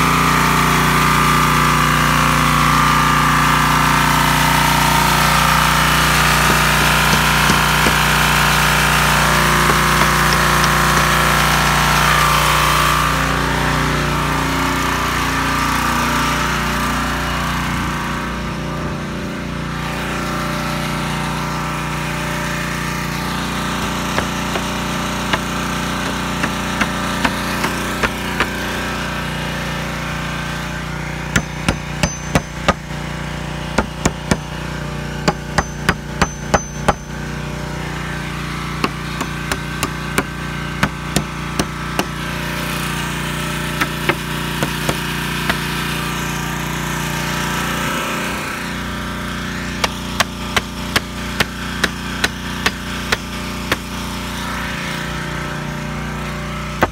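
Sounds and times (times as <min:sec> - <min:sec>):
low mechanical hum: 0:00.0 - 0:56.9
hammer striking nails: 0:06.2 - 0:11.5, 0:23.7 - 0:28.8, 0:31.3 - 0:33.0, 0:33.7 - 0:34.6, 0:35.2 - 0:37.2, 0:38.8 - 0:42.2, 0:43.8 - 0:45.8, 0:49.8 - 0:53.9.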